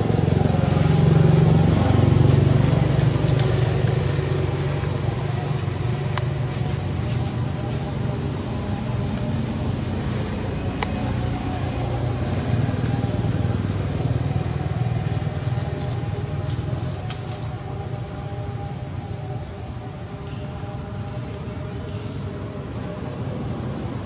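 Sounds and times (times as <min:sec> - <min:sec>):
low engine hum: 0:00.0 - 0:24.0.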